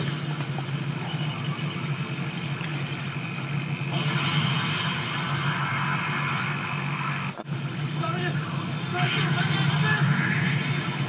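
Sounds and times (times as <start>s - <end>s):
explosion rumble: 3.9s - 7.3s.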